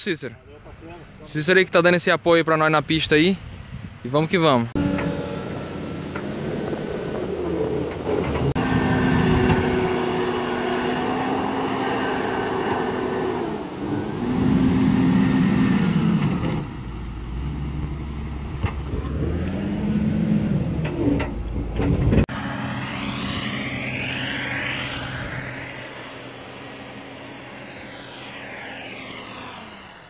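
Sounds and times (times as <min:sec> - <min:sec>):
wheel loader diesel engine working: 0:04.8 - 0:30.0.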